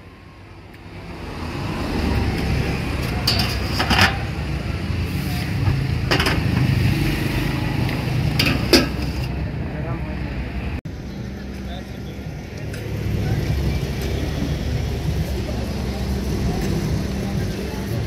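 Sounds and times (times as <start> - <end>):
steel pots and lids clanking: 3.1 - 4.4, 6.0 - 6.8, 8.3 - 9.3.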